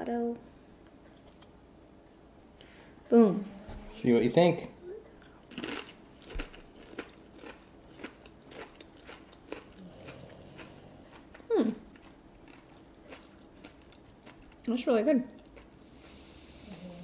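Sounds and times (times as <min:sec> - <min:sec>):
crisp chewing crunches: 0:05.5 - 0:14.7.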